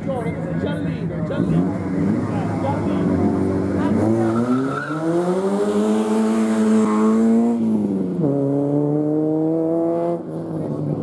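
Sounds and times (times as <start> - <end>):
race car engine accelerating: 1.3 - 11.0.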